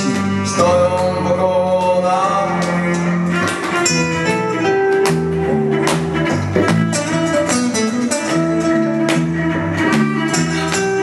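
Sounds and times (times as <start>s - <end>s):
nylon-string guitars strummed: 3.4s - 11.0s.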